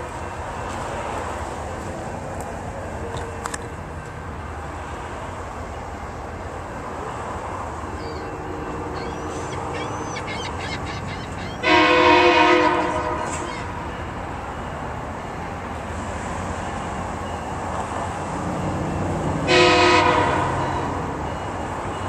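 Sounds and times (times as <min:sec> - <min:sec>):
train rumbling: 0:00.0 - 0:22.0
train air horn blast: 0:11.6 - 0:13.8, 0:19.4 - 0:20.8.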